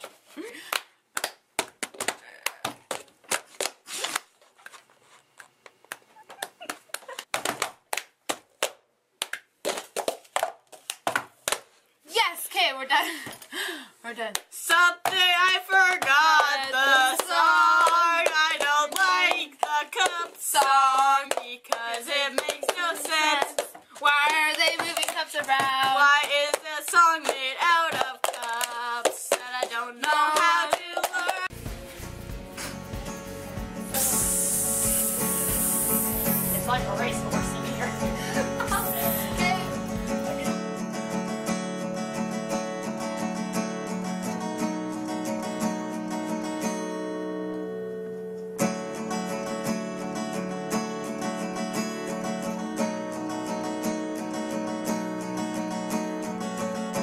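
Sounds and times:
hand claps: 0.6s - 3.8s, 5.9s - 11.7s, 15.9s - 31.5s
palms slapping tabletop: 5.9s - 11.8s
girls singing: 14.6s - 31.5s, 36.5s - 40.5s.

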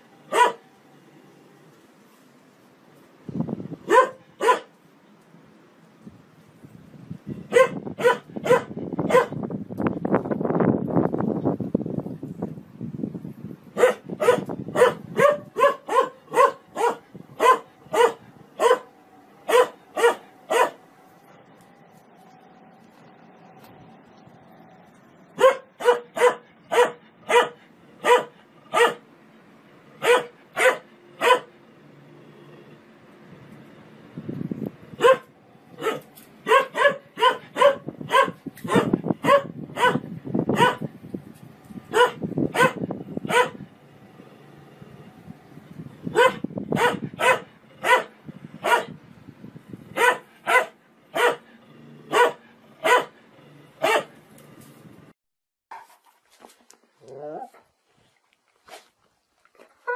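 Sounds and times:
dog barking: 0.3s - 0.6s, 3.9s - 4.7s, 7.5s - 9.4s, 13.8s - 18.9s, 19.5s - 20.8s, 25.4s - 29.0s, 30.0s - 31.5s, 35.0s - 40.9s, 41.9s - 43.6s, 46.1s - 49.0s, 50.0s - 51.5s, 52.1s - 53.2s, 53.8s - 54.2s
low rumbling noise: 6.2s - 25.8s, 26.5s - 55.1s.

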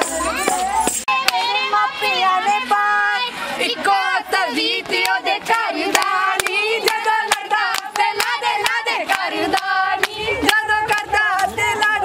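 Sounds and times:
women singing together: 0.8s - 12.0s
rhythmic hand-clapping: 4.3s - 12.0s.

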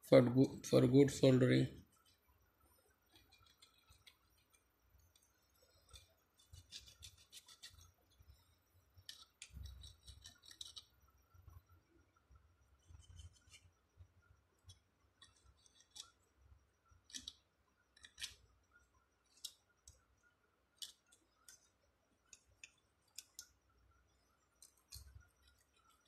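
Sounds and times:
hand tool scraping wire: 3.1s - 4.6s, 5.2s - 8.0s, 9.0s - 10.9s, 12.8s - 13.7s, 15.2s - 16.2s.

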